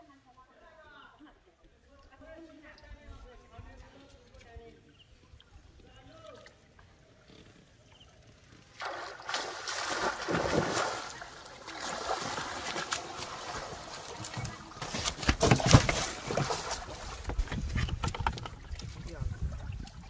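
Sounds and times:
water splashing and sloshing: 5.1 - 20.0
fish thrashing against boat: 8.8 - 19.0.

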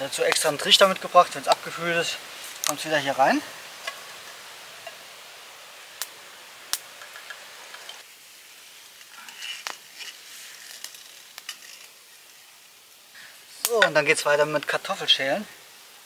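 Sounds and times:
sharp clicks and crackles: 6.7 - 8.0, 9.0 - 12.0.

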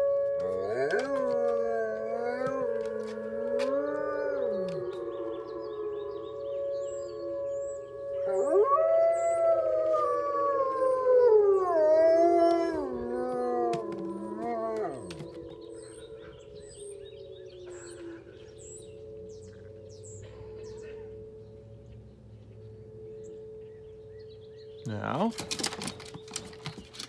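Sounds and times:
dogs howling: 0.0 - 19.2
faint birds chirping: 0.0 - 27.0.

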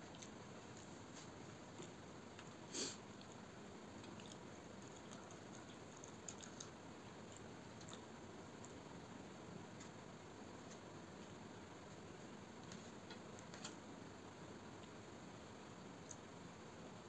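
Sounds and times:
chewing: 0.0 - 8.8.

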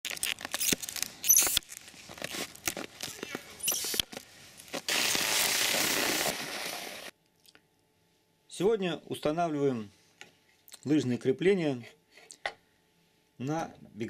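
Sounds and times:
skis gliding over snow: 4.7 - 7.1.

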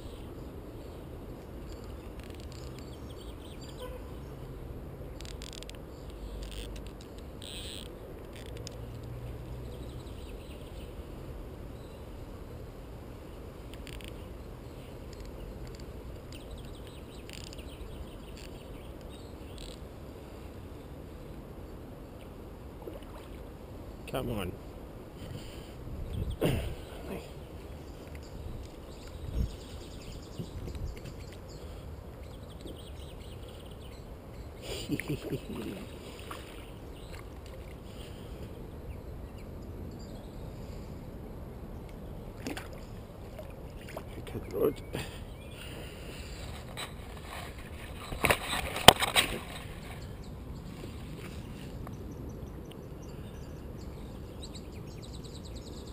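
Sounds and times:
faint light ticks: 15.1 - 19.8, 50.8 - 52.9.

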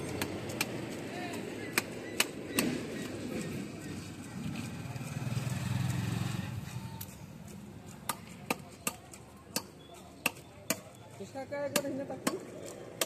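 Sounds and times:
passing vehicle engine hum: 2.5 - 7.9.

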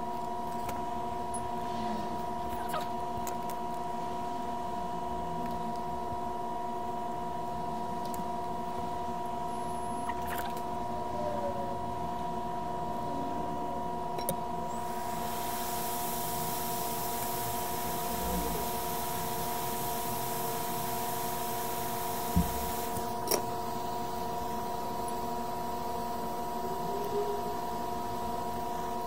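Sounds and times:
steady multi-tone whine: 0.0 - 29.0
hot air gun blowing hiss: 14.8 - 23.2.

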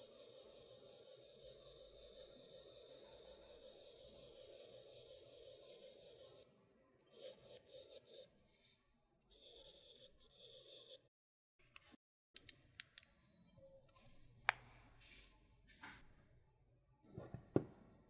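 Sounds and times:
stylus scribbling on glass screen: 0.0 - 11.0.

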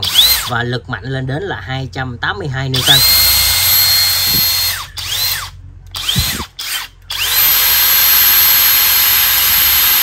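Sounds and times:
impact driver motor whine: 0.0 - 0.5, 2.7 - 10.0.

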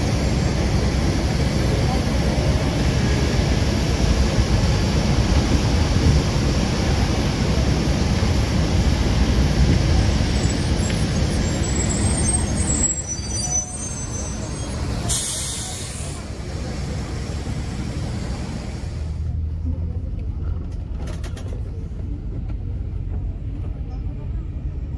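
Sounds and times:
rumble of aircraft and vehicles: 0.0 - 24.9
short hiss of air: 15.1 - 16.2.

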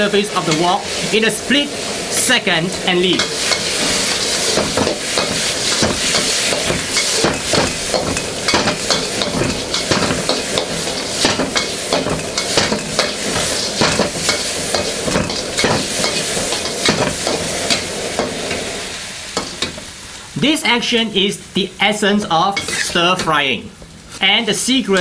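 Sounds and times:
spatula scraping and knocking wok: 0.0 - 20.0, 22.5 - 23.0
food sizzling in a wok: 0.0 - 25.0.

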